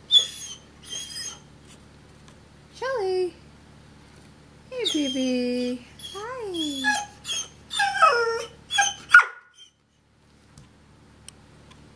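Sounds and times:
dog whining: 0.0s - 1.5s, 4.8s - 9.8s.

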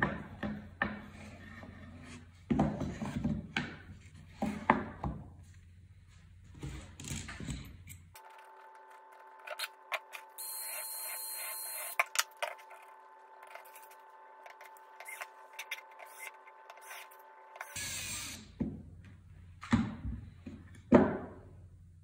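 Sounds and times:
cordless drill whirring: 14.6s - 18.4s.

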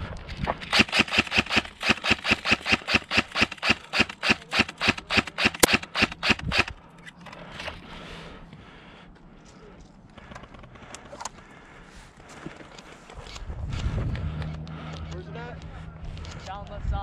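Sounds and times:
airsoft gun firing rapidly: 0.6s - 6.8s.

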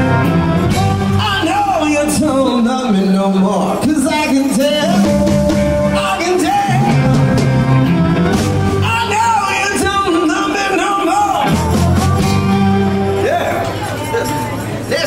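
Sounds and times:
amplified blues harmonica: 0.0s - 1.6s, 4.8s - 14.6s
bass line: 0.0s - 14.9s
electric guitar: 0.0s - 15.0s
keyboard: 0.0s - 15.0s.

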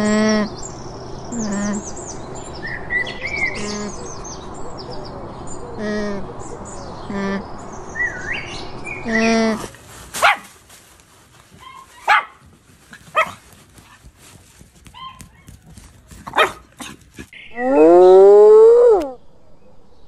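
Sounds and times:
small dogs yapping: 10.1s - 10.6s, 11.5s - 17.4s
hyena whoop rising in pitch: 17.5s - 19.7s.

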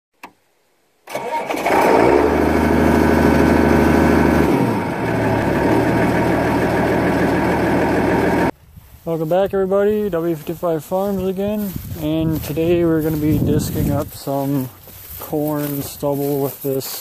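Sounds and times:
tractor diesel engine running: 1.1s - 8.5s.

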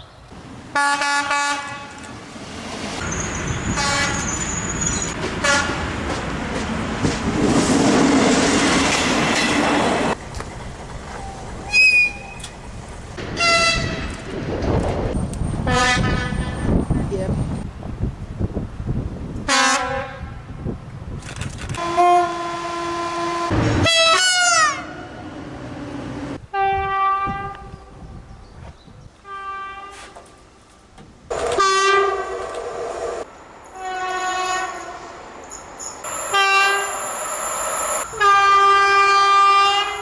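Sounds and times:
train horns: 0.7s - 2.1s, 3.1s - 4.6s, 5.4s - 5.9s, 13.4s - 14.2s, 15.7s - 16.6s, 19.5s - 20.4s, 21.8s - 25.3s, 26.5s - 27.8s, 29.2s - 30.2s, 31.4s - 32.4s, 33.7s - 35.2s, 36.0s - 40.0s.

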